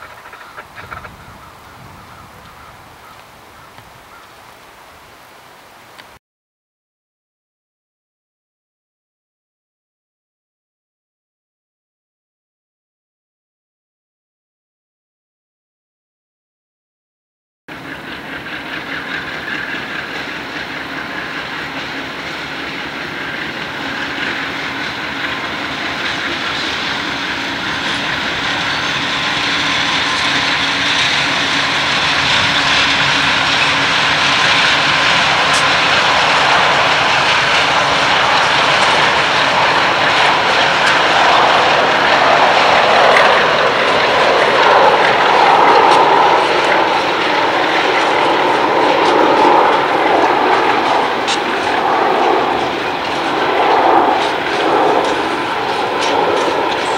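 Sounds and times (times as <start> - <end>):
diesel locomotives passing: 0.0 - 6.2, 17.7 - 56.9.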